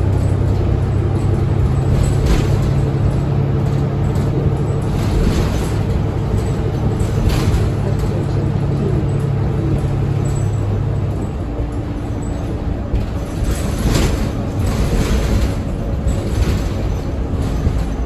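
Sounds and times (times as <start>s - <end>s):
bus engine hum: 0.0s - 18.0s
road rumble: 0.0s - 18.0s.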